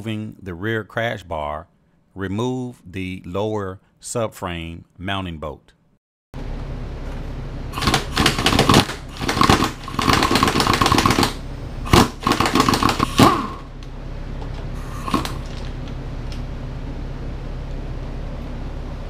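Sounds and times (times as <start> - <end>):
pneumatic impact wrench hammering: 7.8 - 13.6.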